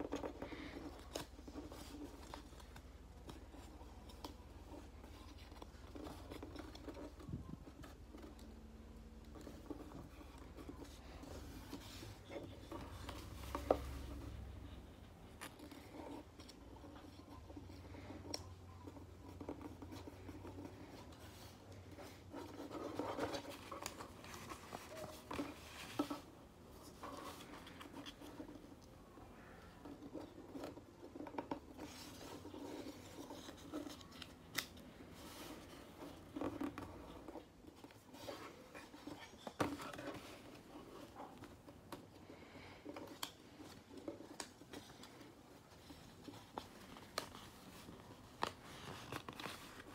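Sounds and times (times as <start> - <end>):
paper rustling and crinkling: 0.0 - 49.9
paper folds crackling: 42.4 - 49.9.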